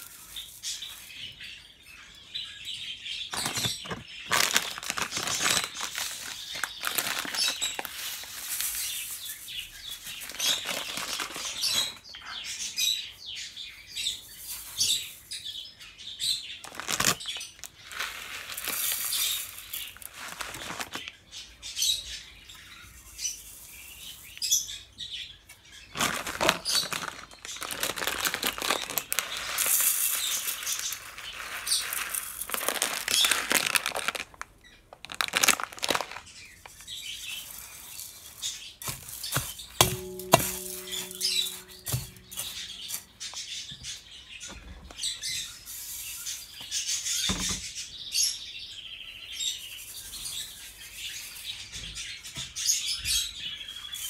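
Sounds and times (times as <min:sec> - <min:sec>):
seeds pouring into metal bowl: 0:00.0 - 0:01.5, 0:04.4 - 0:12.0, 0:16.7 - 0:21.1, 0:26.0 - 0:34.3, 0:37.1 - 0:43.2.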